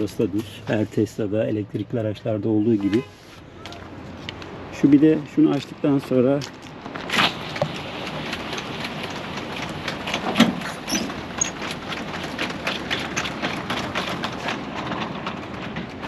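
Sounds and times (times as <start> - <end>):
quick clicks of rolling slats: 6.5 - 16.0.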